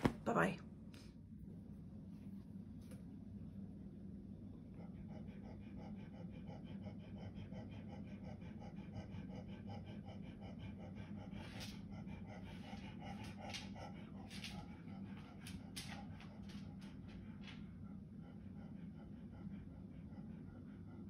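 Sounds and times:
steady low hum: 0.0s - 21.0s
rapid panting: 4.7s - 21.0s.

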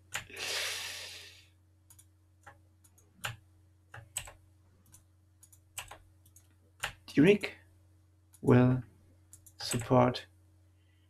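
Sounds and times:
faint electrical hum: 0.0s - 11.0s
short breathy hiss: 0.3s - 1.5s
computer mouse clicks: 1.9s - 7.0s, 9.3s - 10.0s.

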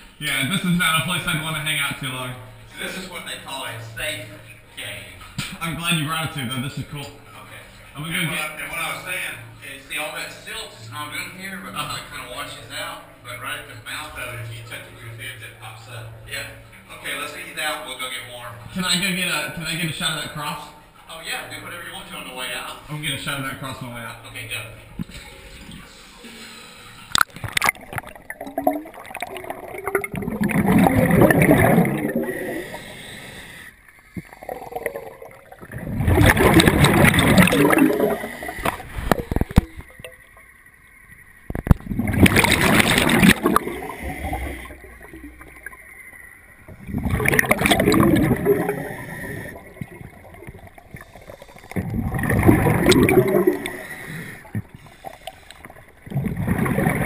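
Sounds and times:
diver breathing on a regulator: 25.1s - 27.2s, 31.9s - 35.1s, 38.0s - 39.4s, 43.6s - 45.2s, 48.0s - 52.2s, 53.2s - 56.4s
gurgling exhaled bubbles: 27.1s - 33.1s, 34.1s - 40.3s, 41.5s - 45.9s, 46.6s - 57.0s.

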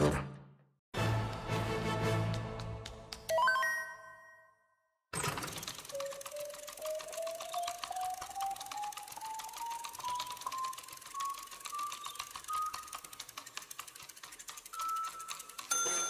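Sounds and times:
rapid ticking: 5.2s - 15.7s.

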